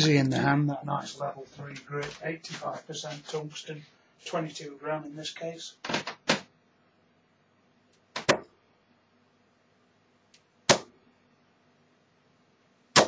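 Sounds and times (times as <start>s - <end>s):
darts thudding into dartboard: 8.2s - 8.6s, 10.7s - 11.0s.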